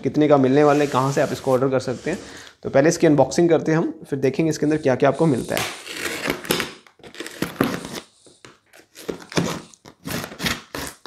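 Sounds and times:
knife cutting packing tape: 5.4s - 11.0s.

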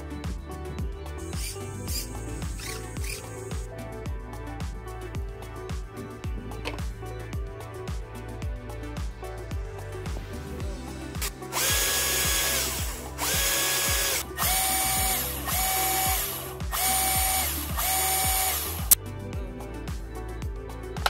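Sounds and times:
background music with beat: 0.0s - 21.0s
electric motor pump whining: 11.5s - 19.0s.

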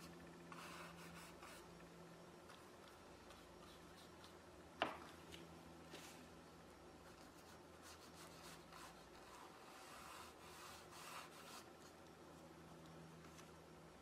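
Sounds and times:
paintbrush scratching on canvas: 7.2s - 11.9s.

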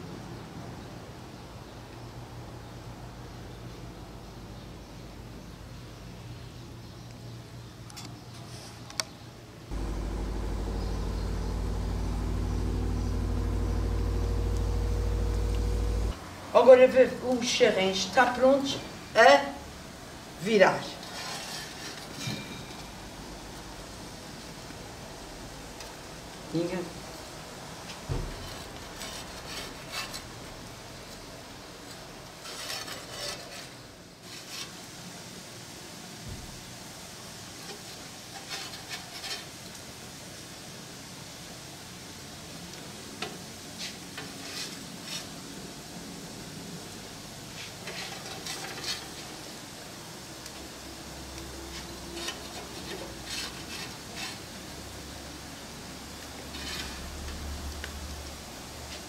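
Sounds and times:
low engine hum: 9.7s - 16.2s
metal spatula scraping a griddle: 21.0s - 22.8s, 28.3s - 30.5s, 32.3s - 34.8s, 38.3s - 39.6s, 43.8s - 45.3s, 47.6s - 49.4s, 51.7s - 54.6s, 56.5s - 57.2s.

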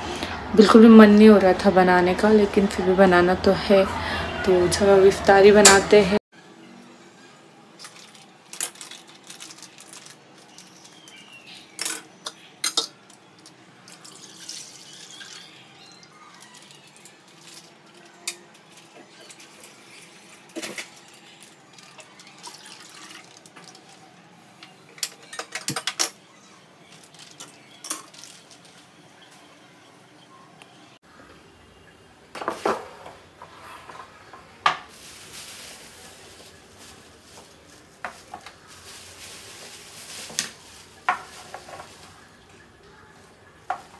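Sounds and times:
liquid pouring into pot: 21.7s - 23.8s.

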